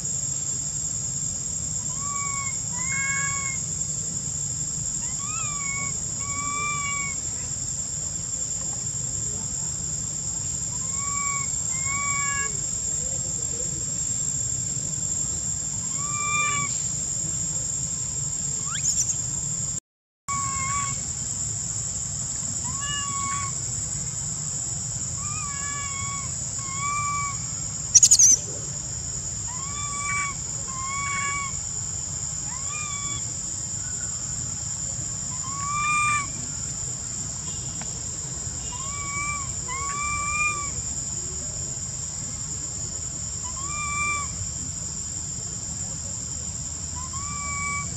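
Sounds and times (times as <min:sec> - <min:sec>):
insects droning: 0:00.0 - 0:47.9
baby monkey coo calls: 0:01.9 - 0:03.6, 0:05.0 - 0:07.4, 0:10.7 - 0:12.7, 0:15.9 - 0:16.9, 0:22.6 - 0:23.6, 0:25.2 - 0:28.4, 0:29.5 - 0:31.6.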